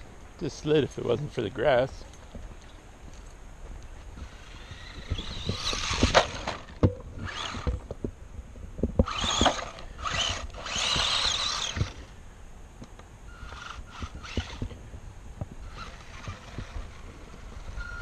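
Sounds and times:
toy car motor whining: 4.2 - 7.8, 9.0 - 12.1, 13.3 - 14.8, 15.6 - 18.0.

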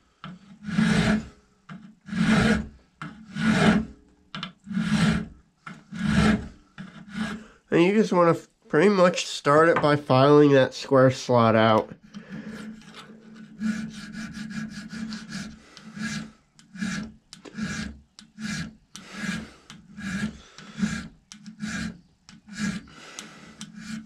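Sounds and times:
hand file filing steel: 0.2 - 4.0, 4.6 - 7.6, 12.1 - 24.0.

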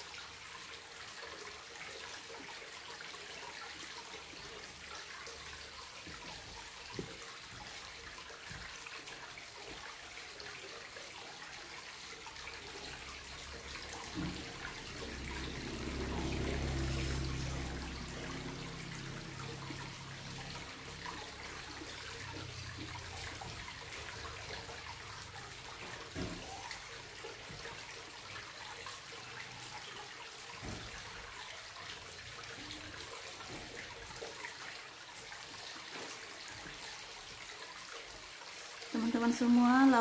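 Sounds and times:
running water hiss: 0.0 - 40.0.

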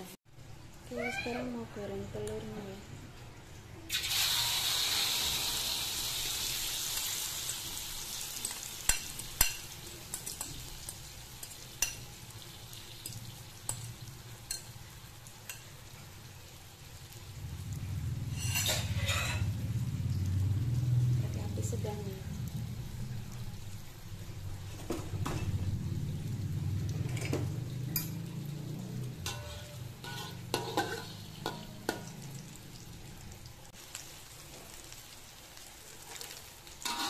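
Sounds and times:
batter sizzling in hot oil: 0.3 - 37.0
metal spoon clinking on wok: 8.4 - 12.1, 27.9 - 28.2, 29.2 - 32.2
low rumble: 17.3 - 29.4.

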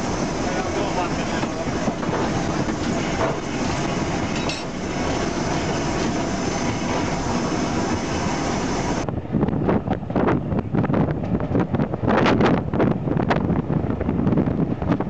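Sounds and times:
steam locomotive rattle and roar: 0.0 - 15.0.

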